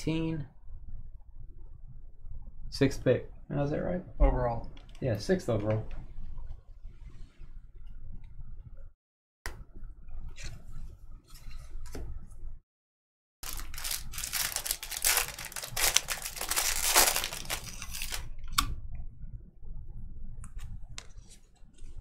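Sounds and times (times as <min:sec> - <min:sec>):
cards being shuffled: 0:13.4 - 0:18.2
foil wrapper tearing and crinkling: 0:13.4 - 0:18.3.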